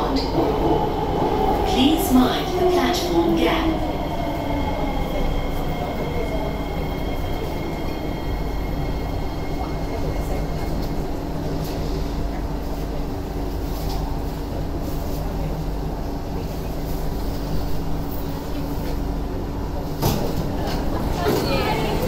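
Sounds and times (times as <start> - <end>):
train doors opening rush: 0.0 - 14.2, 19.8 - 22.0
train cabin hum: 0.0 - 22.0.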